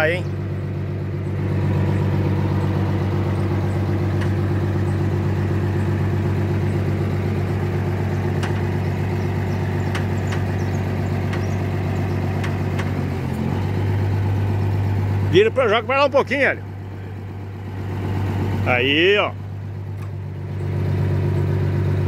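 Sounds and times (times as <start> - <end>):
truck engine idling: 0.0 - 22.0
light clicks or knocks: 8.4 - 8.8.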